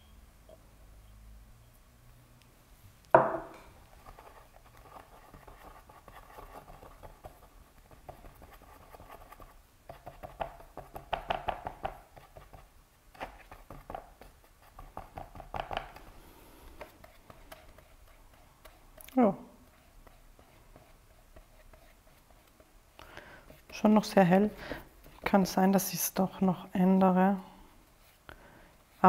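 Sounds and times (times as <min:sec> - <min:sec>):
paintbrush tapping and scraping: 0:03.1 - 0:26.5
glass jar set down on table: 0:03.2 - 0:03.6.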